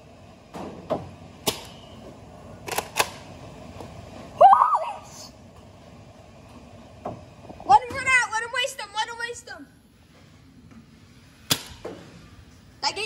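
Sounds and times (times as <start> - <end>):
child yelping: 4.4 - 5.3.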